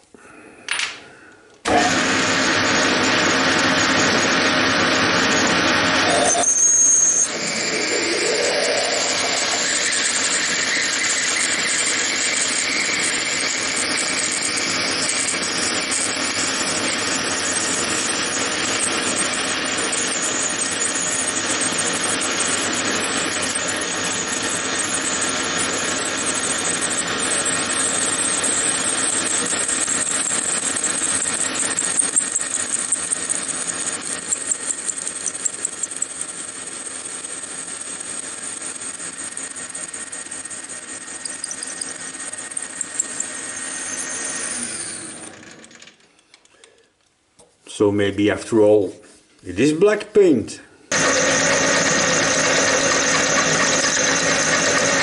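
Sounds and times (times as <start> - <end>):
sharp uneven cutting pulses: 1.7 - 26.8
lathe drilling steel: 1.7 - 46.0, 50.9 - 55.0.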